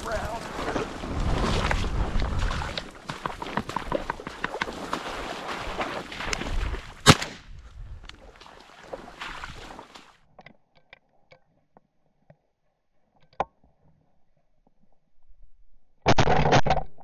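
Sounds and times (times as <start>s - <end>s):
wind on microphone: 0.0s - 2.9s, 6.2s - 8.3s
shotgun shot: 7.0s - 7.5s.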